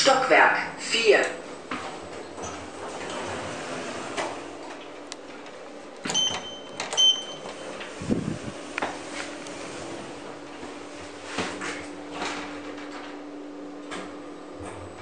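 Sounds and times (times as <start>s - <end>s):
elevator button beeps: 6.0s - 7.9s.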